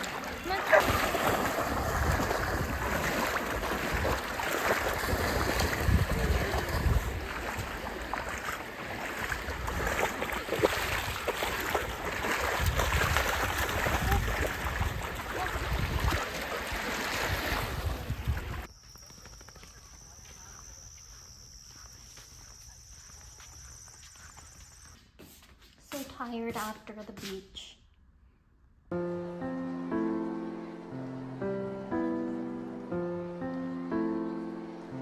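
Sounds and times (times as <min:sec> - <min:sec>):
small waves lapping: 0:00.0 - 0:18.7
dogs splashing through water: 0:00.0 - 0:19.6
wind buffeting microphone: 0:00.9 - 0:18.7.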